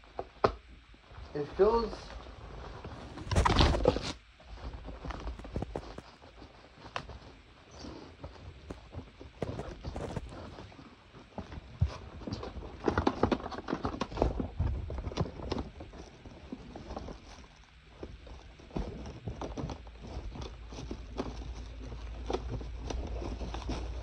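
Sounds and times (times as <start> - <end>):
steady low hum: 1.0 - 11.7.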